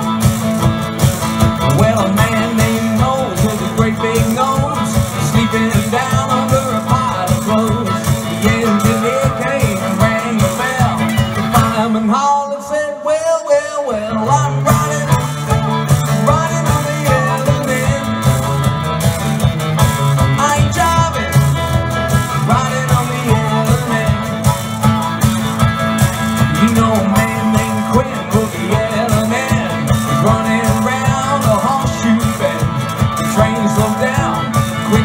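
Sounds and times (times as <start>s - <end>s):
steady drum beat: 0.0s - 12.1s, 14.3s - 35.0s
blues band playing: 0.0s - 35.0s
electric guitar: 0.0s - 35.0s.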